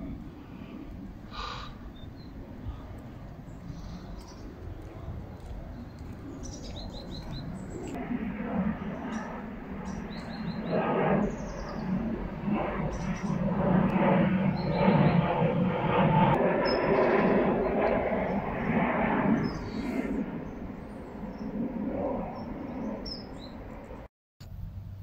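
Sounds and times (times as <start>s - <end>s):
songbirds chirping: 0.1s - 8.0s, 8.8s - 12.2s.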